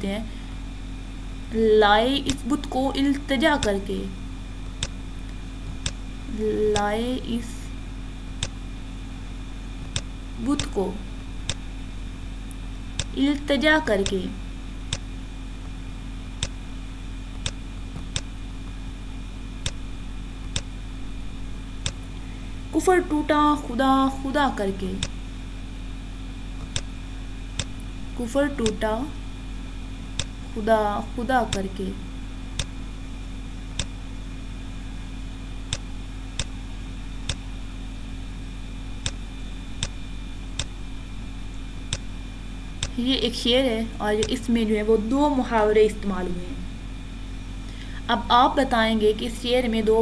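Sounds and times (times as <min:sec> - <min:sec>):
electrical hum: 0:00.0 - 0:50.0
sharp clicks: 0:04.6 - 0:06.0, 0:08.4 - 0:08.6, 0:09.8 - 0:10.8, 0:11.4 - 0:11.6, 0:12.5 - 0:13.2, 0:16.4 - 0:16.6, 0:17.3 - 0:18.8, 0:19.6 - 0:20.7, 0:21.8 - 0:22.2, 0:26.6 - 0:26.9, 0:27.6 - 0:27.9, 0:30.2 - 0:30.4, 0:32.6 - 0:32.8, 0:33.7 - 0:34.0, 0:35.7 - 0:36.6, 0:39.8 - 0:40.8, 0:42.8 - 0:43.0, 0:44.2 - 0:44.4.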